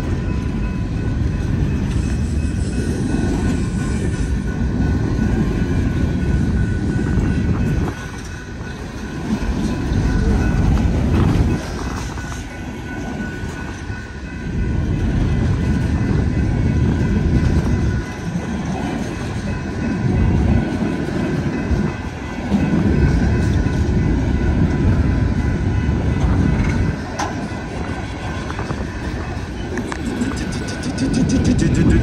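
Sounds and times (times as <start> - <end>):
crossing bell ringing: 0.0 - 32.0
freight train wheels rumbling: 0.0 - 32.0.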